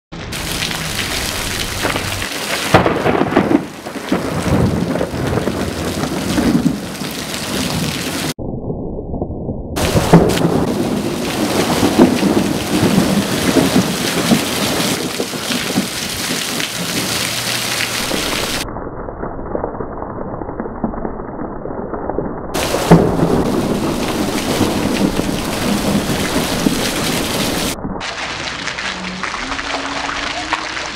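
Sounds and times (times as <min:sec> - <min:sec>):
steady rain: 0:00.2 - 0:08.4, 0:09.8 - 0:18.7, 0:22.6 - 0:30.9
thunder rumbling: 0:00.2 - 0:21.2, 0:22.5 - 0:30.1
loud thunderclap: 0:00.7 - 0:08.4, 0:09.1 - 0:17.2, 0:18.0 - 0:18.7, 0:22.6 - 0:27.8.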